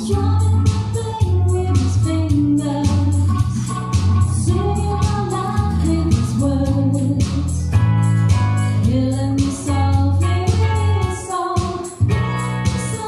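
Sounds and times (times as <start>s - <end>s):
person singing: 0.0s - 7.7s, 8.8s - 13.0s
regular beat: 0.0s - 13.0s
steady bass line: 0.0s - 13.0s
electronic accompaniment: 1.5s - 9.7s.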